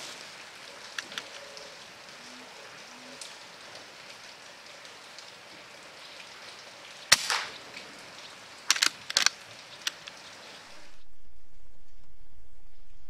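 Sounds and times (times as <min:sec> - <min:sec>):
rain pattering: 0:00.0 - 0:12.9
air rifle shot: 0:07.1 - 0:07.6
sharp clicks: 0:08.7 - 0:10.0.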